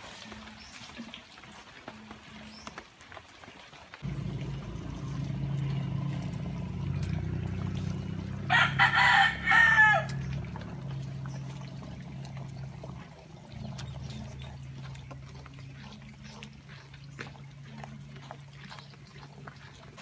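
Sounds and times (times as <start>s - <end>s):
rooster crowing: 8.4s - 10.3s.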